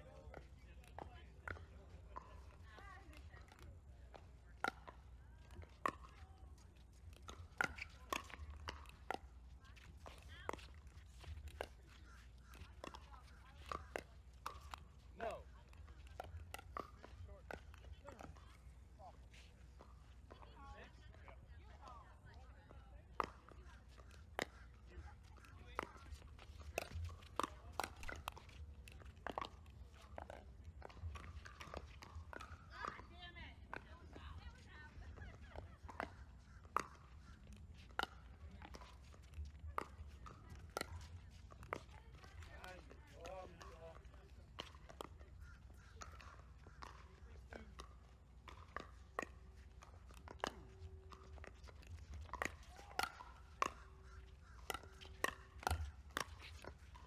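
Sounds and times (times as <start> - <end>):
paddles hitting plastic ball: 0.2 - 18.6, 23.1 - 57.0
paddles striking plastic ball: 35.8 - 57.0.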